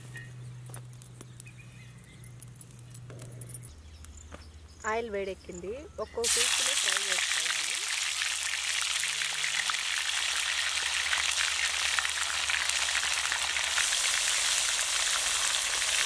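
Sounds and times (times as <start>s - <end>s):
fish sizzling in hot oil: 6.2s - 16.0s.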